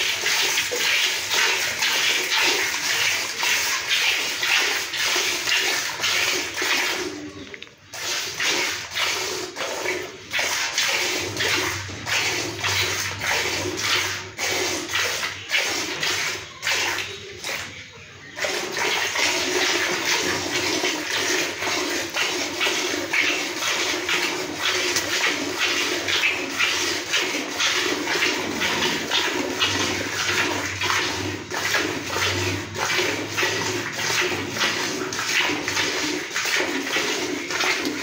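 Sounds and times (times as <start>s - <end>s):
milk squirting into pail: 0.0s - 38.0s.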